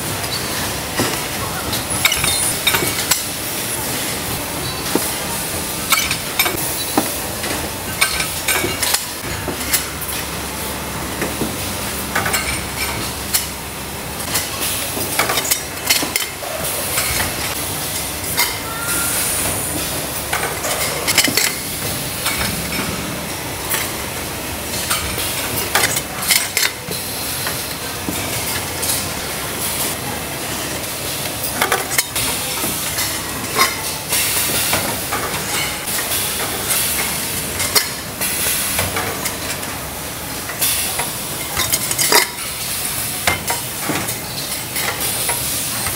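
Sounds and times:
factory machinery hissing: 13.0 - 45.9.

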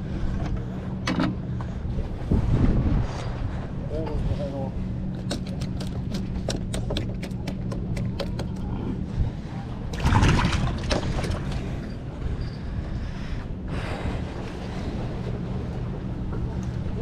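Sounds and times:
fish splashing into water: 10.0 - 11.6.

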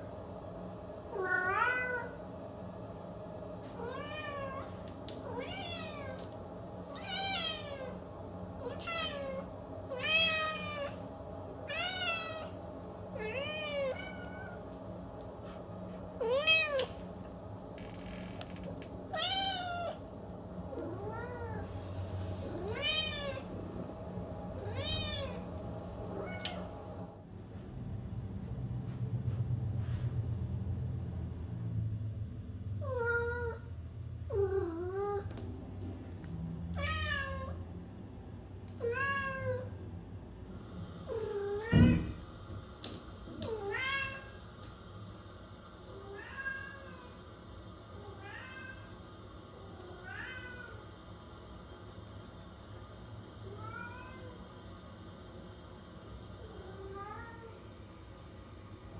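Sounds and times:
low hum: 0.0 - 38.8.

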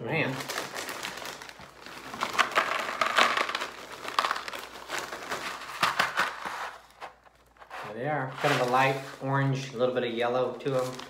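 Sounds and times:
plastic snack bag crinkling: 0.0 - 11.0
crunchy fries rattling into bowl: 0.4 - 6.5.

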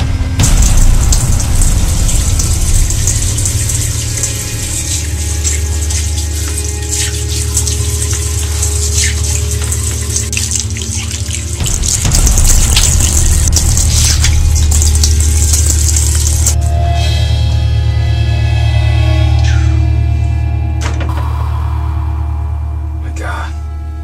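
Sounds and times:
water splashing: 0.4 - 16.6
faucet running into basin: 0.8 - 16.6.

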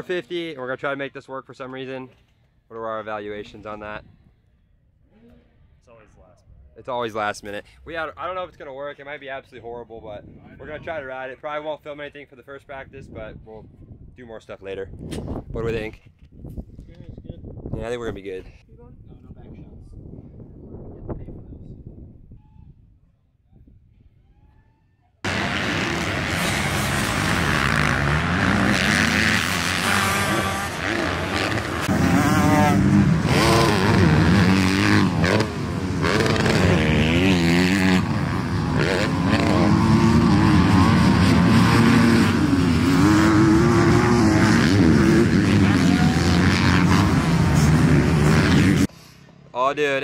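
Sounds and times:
dirt bike engines revving: 25.3 - 49.0.

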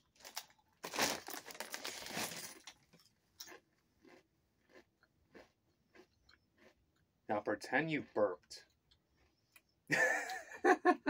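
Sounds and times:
chips crunching: 0.1 - 7.1.

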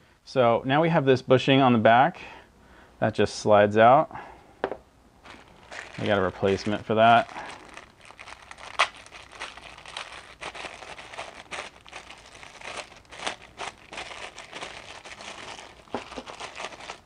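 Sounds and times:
plastic bag crinkling: 5.2 - 17.0.

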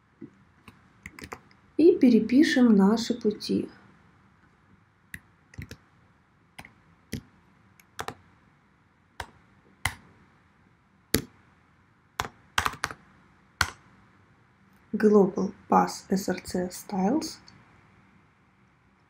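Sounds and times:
keyboard key clicks: 5.6 - 5.8.

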